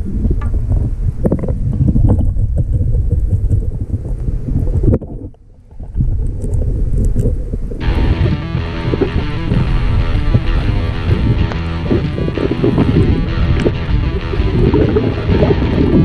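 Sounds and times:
underwater water rumble: 0.0s - 16.0s.

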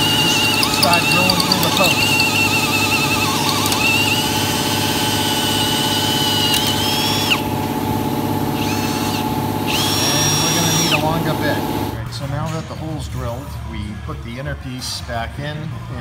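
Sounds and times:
drill whining through metal: 0.0s - 7.4s, 8.6s - 11.0s.

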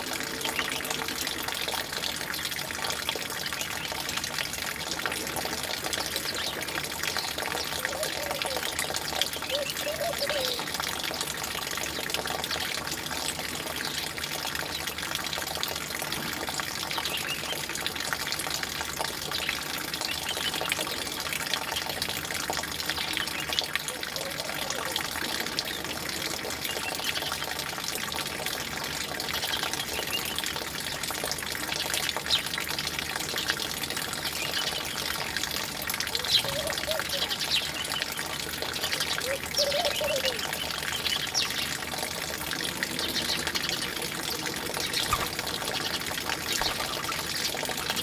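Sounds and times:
running water: 0.0s - 48.0s
sparrows chirping: 44.7s - 47.6s.

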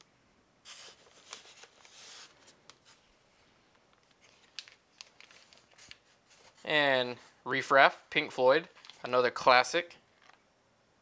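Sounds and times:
plastic bags crinkling: 4.0s - 6.7s.

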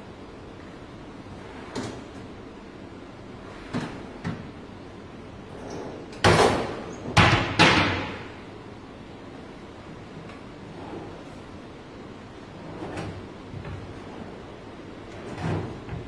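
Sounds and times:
cabinet doors banging shut: 6.2s - 8.3s.

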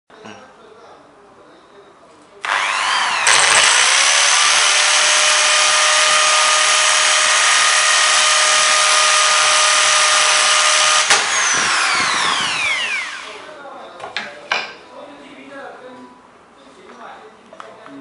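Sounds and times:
power drill whining: 2.4s - 13.5s.

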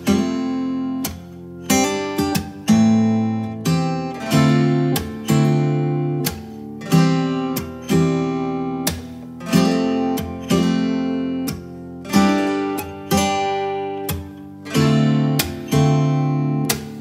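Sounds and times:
acoustic guitar strumming chords: 0.0s - 17.0s.

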